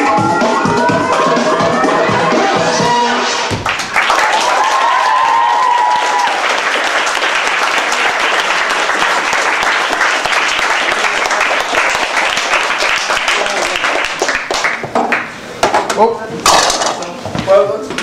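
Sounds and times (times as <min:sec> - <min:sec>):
audience clapping and cheering: 0:03.5 - 0:15.4
person holding long cheer: 0:04.1 - 0:06.7.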